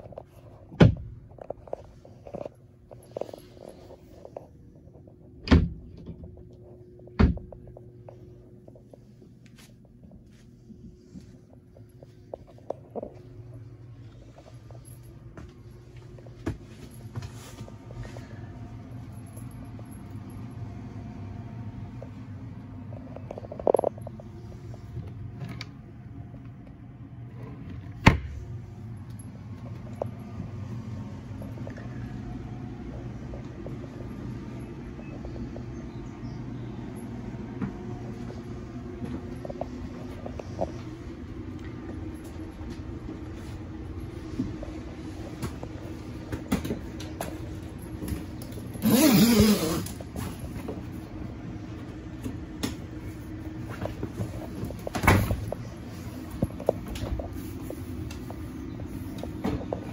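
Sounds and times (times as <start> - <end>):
low steady hum: 0.0 - 59.9.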